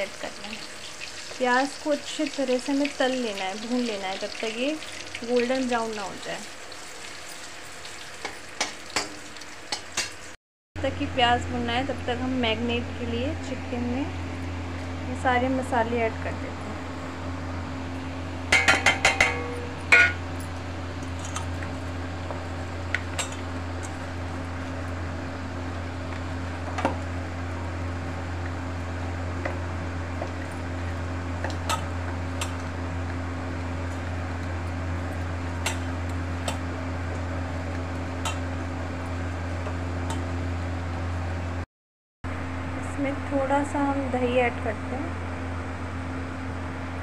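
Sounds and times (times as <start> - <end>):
steady low hum: 10.8 - 41.6
metal plate tapping on bowl: 18.5 - 20.2.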